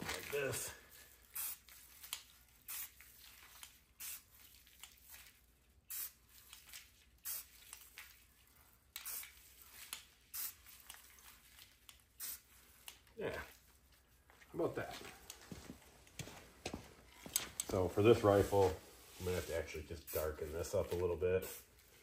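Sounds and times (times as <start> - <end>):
spray paint can hissing: 1.3 - 5.2, 5.9 - 8.2, 8.9 - 11.3, 12.2 - 13.0, 21.4 - 21.7.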